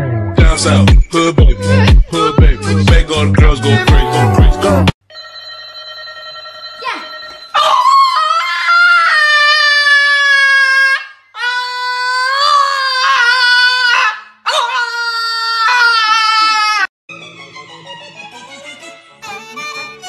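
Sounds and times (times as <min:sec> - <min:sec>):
dog howling: 0:07.6 - 0:16.8.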